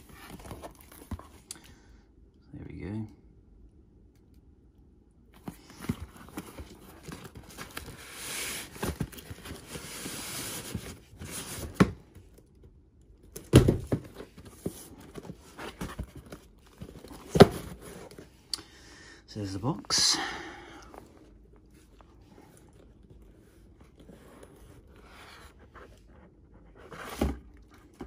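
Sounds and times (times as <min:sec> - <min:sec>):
cardboard and tissue paper rustling: 0:05.4 - 0:11.9, 0:13.7 - 0:18.4
shoebox sliding: 0:05.4 - 0:11.9
boxes knocking and thumping: 0:13.4 - 0:18.1.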